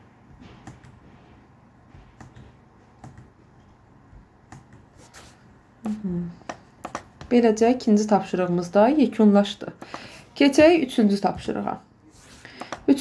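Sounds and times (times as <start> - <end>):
low room noise: 0.0 - 13.0
keyboard clicks: 0.6 - 1.0, 2.2 - 3.3, 4.5 - 4.9.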